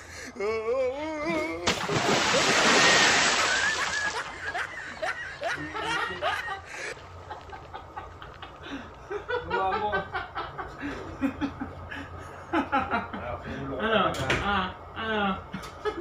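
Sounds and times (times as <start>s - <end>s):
man laughing: 0.5s - 13.4s
water splashing: 1.6s - 6.5s.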